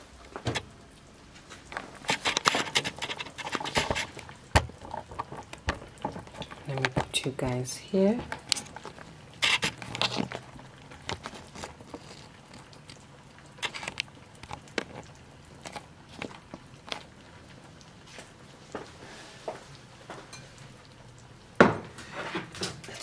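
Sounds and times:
kitchen items clicking and knocking: 2.0 - 11.6.

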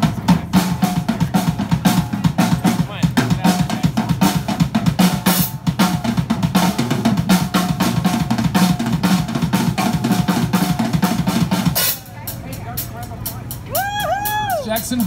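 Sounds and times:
rock drum kit playing: 0.0 - 15.0.

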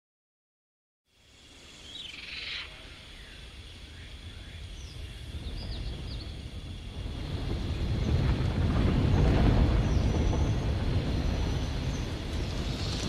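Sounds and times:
bird-like chirps: 1.3 - 6.4
low rumble: 4.2 - 13.0.

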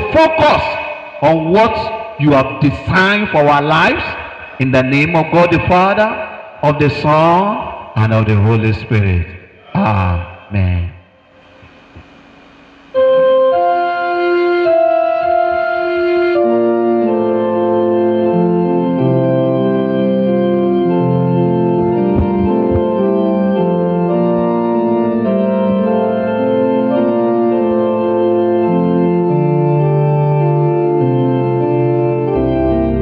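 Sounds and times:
organ music: 0.0 - 9.3, 12.4 - 33.0.

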